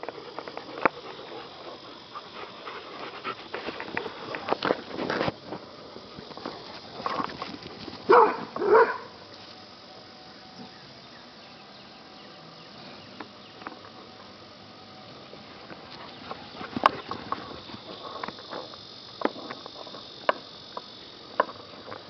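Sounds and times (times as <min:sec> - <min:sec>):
dogs scuffling and panting: 0:00.0 - 0:08.4, 0:15.1 - 0:18.8
dog barking: 0:08.1 - 0:09.1.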